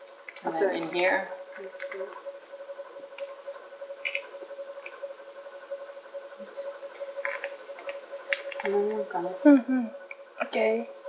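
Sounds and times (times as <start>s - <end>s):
steady hum: 0.0s - 11.0s
plastic crinkling: 6.9s - 9.1s.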